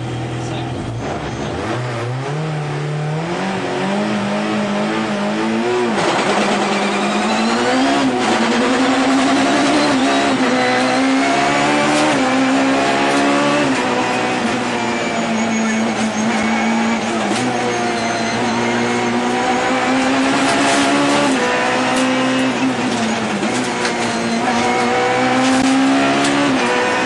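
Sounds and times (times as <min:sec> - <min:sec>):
car engine accelerating through gears: 0:00.0 - 0:27.0.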